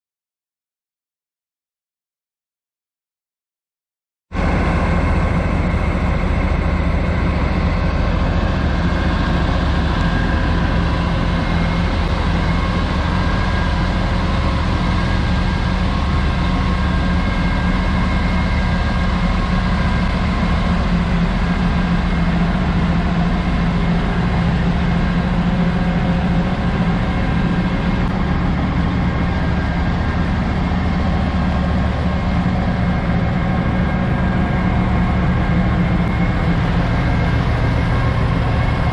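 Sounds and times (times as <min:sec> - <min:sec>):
diesel truck engine idling: 0:04.4 - 0:38.9.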